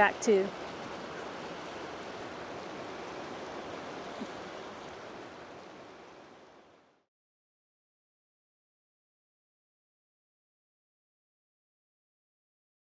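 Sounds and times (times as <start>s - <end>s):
river flowing over rocks: 0.0s - 7.0s.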